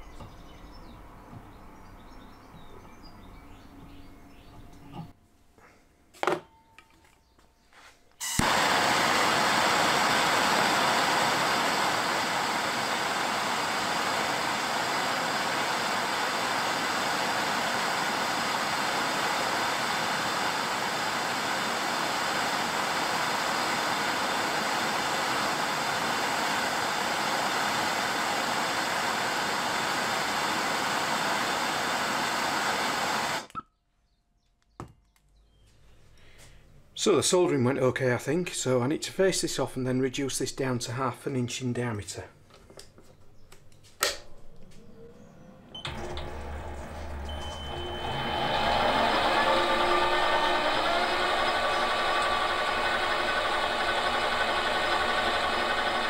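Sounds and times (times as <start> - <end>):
blowtorch flame hissing: 8.2 - 33.5, 45.9 - 56.0
blowtorch lighting pop: 8.2 - 33.5.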